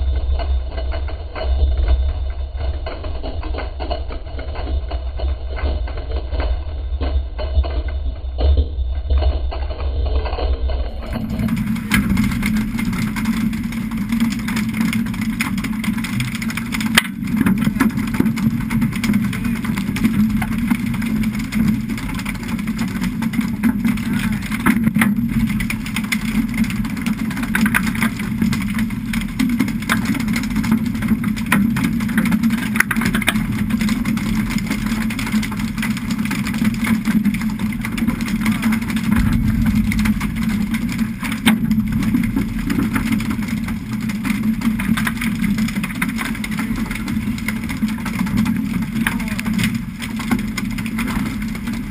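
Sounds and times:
boat engine droning: 10.9s - 51.9s
water splashing along hull: 10.9s - 51.9s.

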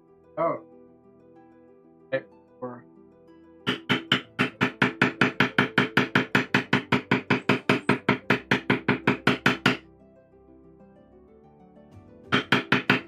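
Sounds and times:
background music: 0.0s - 13.0s
mallet striking leather tool: 3.7s - 9.8s, 12.3s - 13.0s.

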